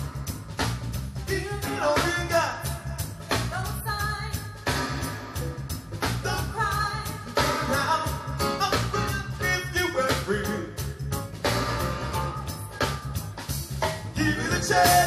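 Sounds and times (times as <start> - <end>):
reggae band playing: 0.0 - 15.0
man singing: 1.3 - 3.0, 7.4 - 10.9, 14.2 - 15.0.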